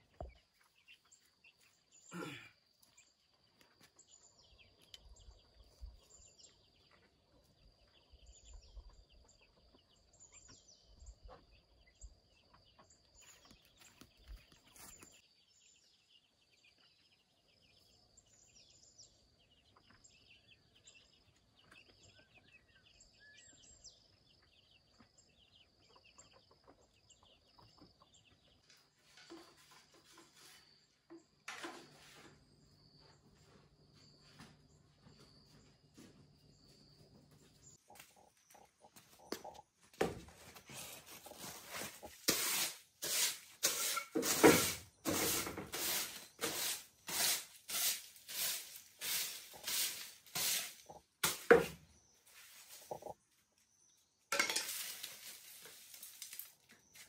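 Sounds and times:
rustling scrapes: 0:40.2 - 0:53.2, 0:54.4 - 0:57.0.

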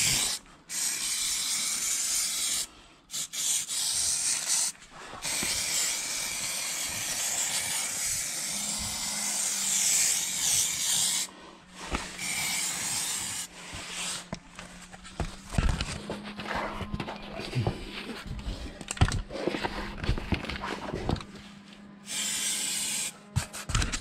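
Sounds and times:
aerosol spray can hissing: 0:00.0 - 0:11.3, 0:12.2 - 0:13.5, 0:22.1 - 0:23.7.

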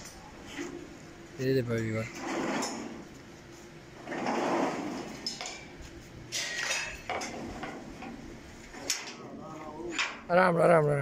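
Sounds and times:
metal drawer scraping slide: 0:02.1 - 0:03.1, 0:04.0 - 0:05.4
metallic knocks and clatters: 0:04.1 - 0:09.2.

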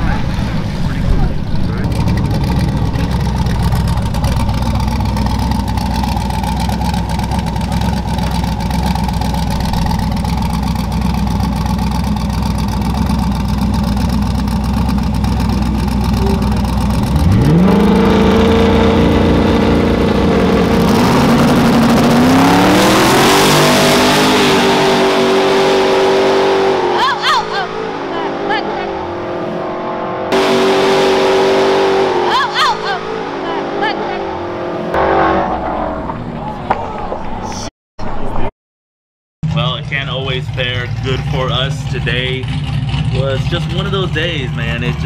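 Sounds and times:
drag car engines rumbling: 0:00.0 - 0:38.5, 0:39.4 - 0:45.0
car engine revving through gears: 0:01.3 - 0:36.5.

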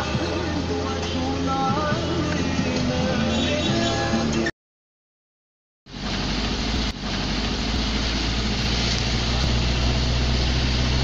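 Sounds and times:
road and tyre noise: 0:00.0 - 0:04.5, 0:05.9 - 0:11.0
vehicle engine hum: 0:00.0 - 0:04.5, 0:05.9 - 0:11.0.

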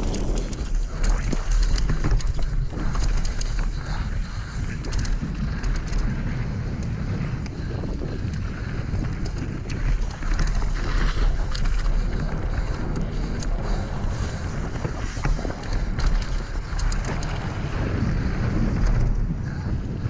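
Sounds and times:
tyres crunching on loose stones: 0:00.0 - 0:06.2, 0:09.3 - 0:17.7
bike clicks and rattles: 0:00.0 - 0:20.0
wind rushing over microphone: 0:00.0 - 0:20.0.

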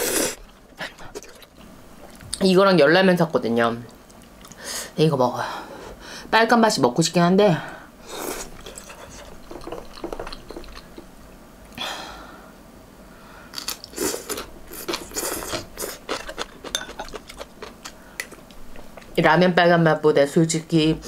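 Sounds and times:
crunchy chewing: 0:13.6 - 0:19.2
metal spoon clinking in bowl: 0:16.7 - 0:17.1.

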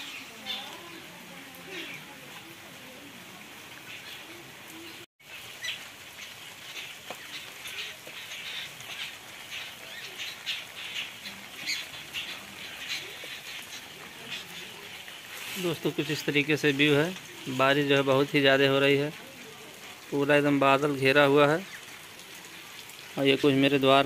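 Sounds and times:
sparrows chirping: 0:00.0 - 0:02.2, 0:03.8 - 0:16.3
rain hissing: 0:00.0 - 0:24.0.

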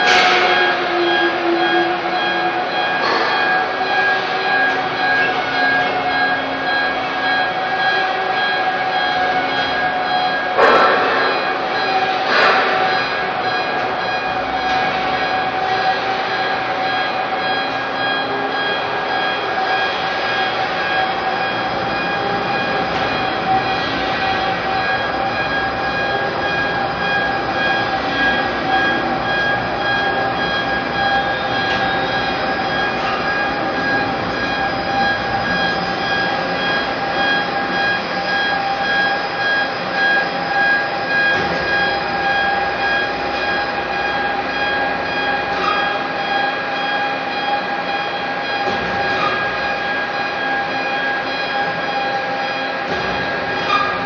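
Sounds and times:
overhead crane mechanical drone: 0:00.0 - 0:54.0.

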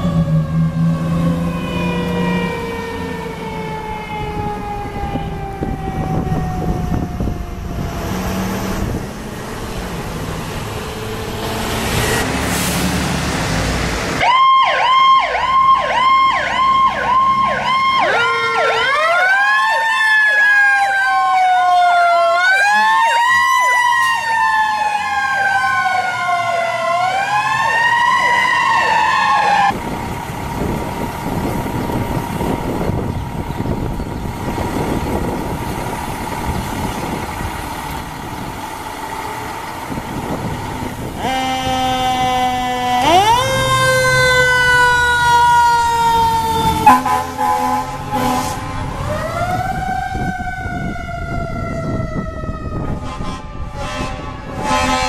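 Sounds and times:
electronic yelp siren: 0:00.0 - 0:08.1, 0:14.2 - 0:29.8, 0:41.1 - 0:55.0
siren gliding down in pitch: 0:00.0 - 0:09.7, 0:10.6 - 0:29.8, 0:41.2 - 0:55.0
truck engine rumble: 0:00.0 - 0:55.0
wailing siren: 0:00.0 - 0:55.0.

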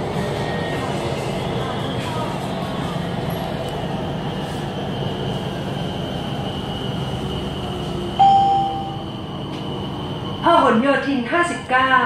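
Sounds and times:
train rumbling on track: 0:00.0 - 0:12.0
in-car chime: 0:08.2 - 0:09.0.

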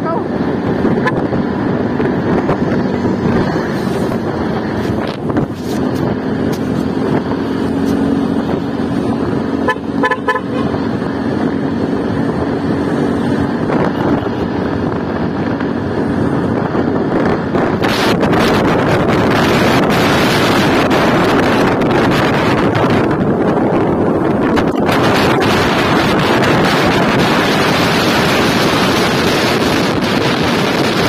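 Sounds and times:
motorcycle engine drone: 0:00.0 - 0:31.0
wind and road noise: 0:00.0 - 0:31.0
vehicle horn toots: 0:01.0 - 0:01.3, 0:09.6 - 0:10.8.

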